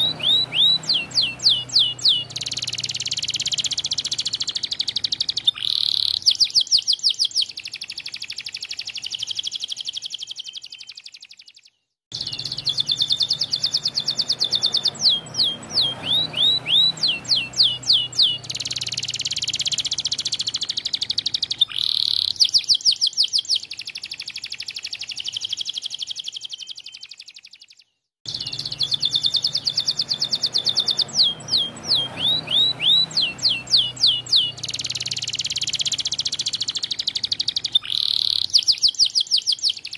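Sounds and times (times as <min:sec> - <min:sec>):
canary singing trills: 0:00.0 - 0:39.9.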